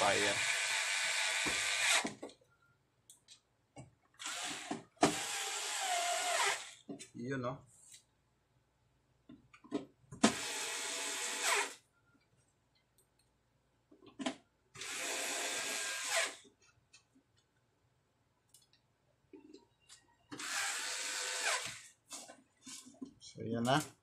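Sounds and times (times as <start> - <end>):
electric screwdriver whirring: 0.2 - 2.2, 4.2 - 6.8, 10.2 - 11.8, 14.8 - 16.4, 20.4 - 21.9.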